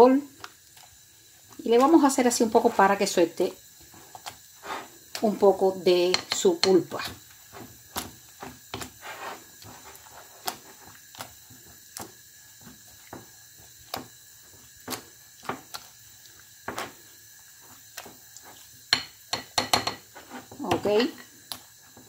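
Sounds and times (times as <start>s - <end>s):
soft mashing of beans: 0.0s - 22.0s
masher knocking against glass bowl: 19.0s - 20.0s.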